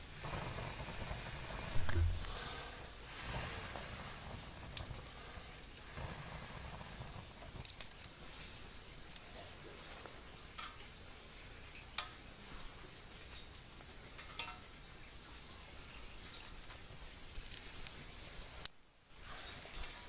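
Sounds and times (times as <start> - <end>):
small wood fire crackling: 0.0 - 20.0
sharp snaps of burning twigs: 0.2 - 9.4, 16.0 - 18.9.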